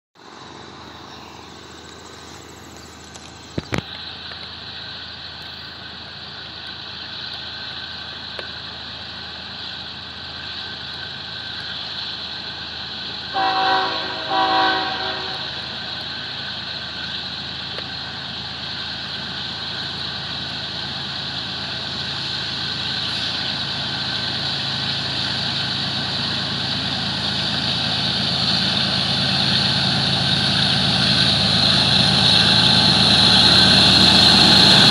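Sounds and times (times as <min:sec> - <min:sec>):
freight train rumble: 0:00.2 - 0:34.9
train horn blasts: 0:13.3 - 0:15.8.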